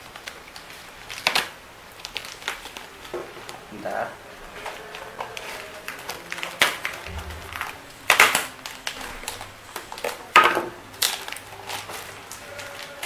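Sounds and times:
plastic ripping: 0:00.0 - 0:03.6.

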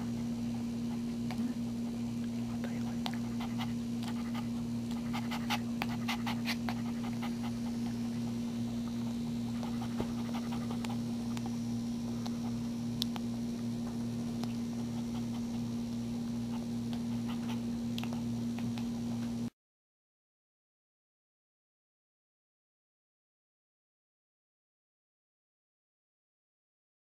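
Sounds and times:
low hum: 0:00.0 - 0:19.5
dog panting: 0:00.4 - 0:12.7, 0:14.4 - 0:18.9
puppy suckling clicks: 0:02.2 - 0:11.6, 0:12.2 - 0:13.3, 0:14.4 - 0:19.0.

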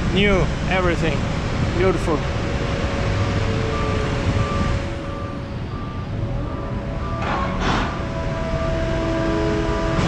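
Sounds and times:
rumble of machinery: 0:00.0 - 0:10.0
back-up alarm beeping: 0:03.0 - 0:07.4.

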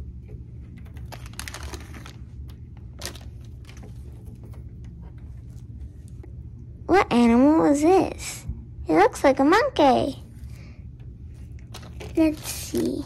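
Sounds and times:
low steady hum: 0:00.0 - 0:13.0
plastic packet crinkling: 0:00.8 - 0:04.5, 0:11.5 - 0:13.0.

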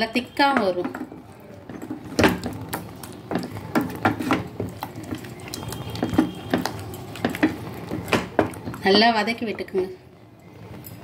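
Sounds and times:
wooden spatula scraping metal pot: 0:00.4 - 0:09.7.

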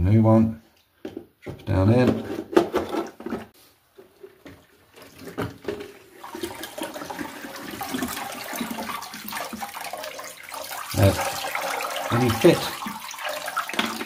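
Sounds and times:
water sloshing in toilet cistern: 0:02.6 - 0:14.0.

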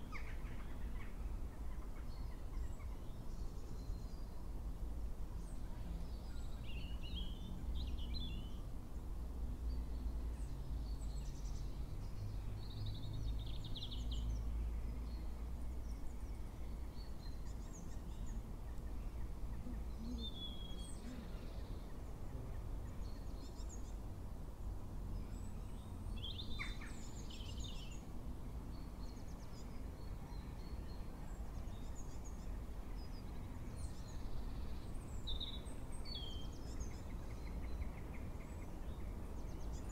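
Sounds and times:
low outdoor rumble: 0:00.0 - 0:36.0.

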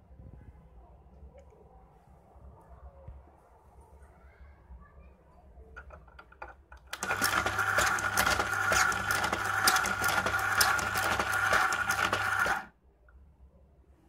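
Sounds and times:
cutter clicking rapidly: 0:06.8 - 0:12.7
tape dispenser motor humming: 0:06.9 - 0:12.7.

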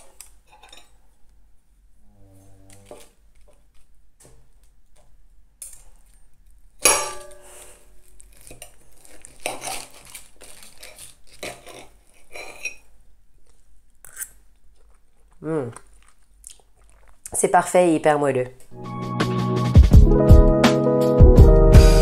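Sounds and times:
cutlery scraping on a plate: 0:00.5 - 0:01.0, 0:10.8 - 0:12.9
ringing cutlery clink: 0:06.8 - 0:07.6.

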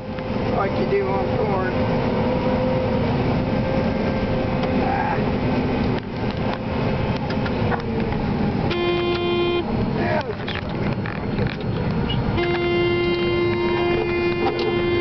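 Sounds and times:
combine harvester running: 0:00.0 - 0:15.0
horn-like tone: 0:08.7 - 0:09.7, 0:12.1 - 0:15.0.

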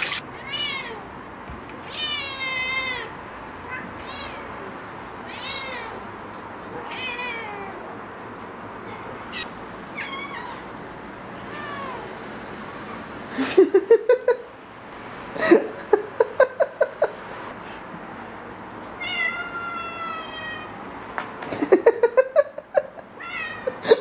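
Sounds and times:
cats meowing: 0:00.0 - 0:01.2, 0:01.8 - 0:08.0, 0:08.8 - 0:10.8, 0:11.4 - 0:12.2, 0:19.0 - 0:20.8, 0:23.0 - 0:24.0.

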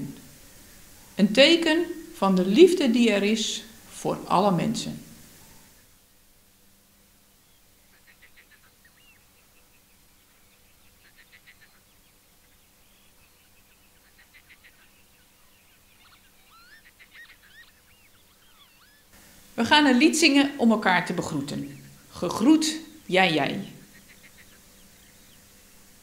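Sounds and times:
faint bird trills: 0:07.4 - 0:19.2, 0:21.5 - 0:25.6
bird chirps rising and falling: 0:10.5 - 0:19.1.

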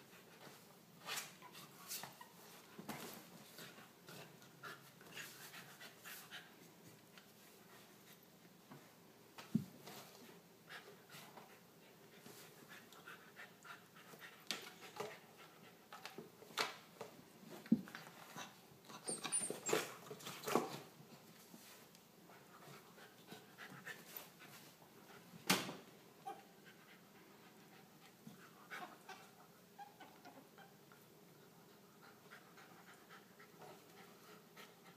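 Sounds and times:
puppy panting: 0:31.7 - 0:34.9.

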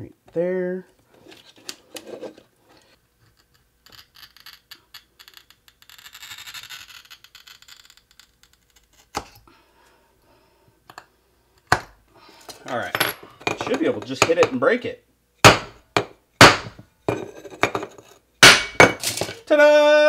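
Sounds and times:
rapid scratching on tile: 0:03.9 - 0:09.1.

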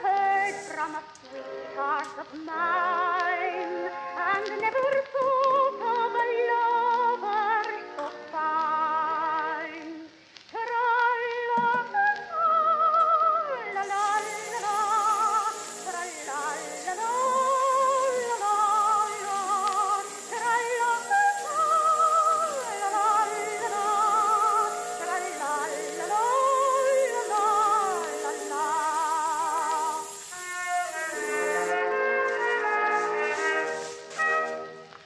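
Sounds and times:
old recording of solo singer: 0:00.0 - 0:33.7.

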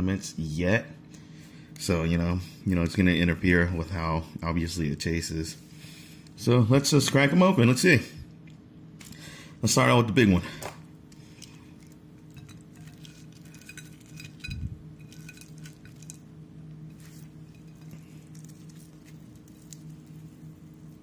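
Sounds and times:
steady low hum: 0:00.0 - 0:21.0
clicks and clinks against plate: 0:12.3 - 0:16.2.

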